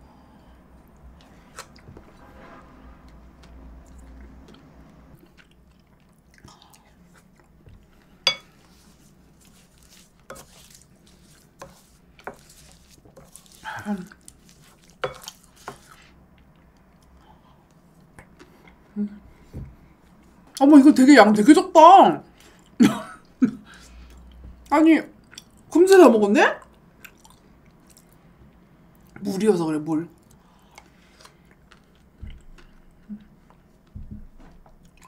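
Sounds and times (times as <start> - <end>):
soft chewing and lip smacks: 3.4 - 8.2, 12.6 - 18.9, 23.7 - 25.7, 26.6 - 29.2, 30.1 - 35.0.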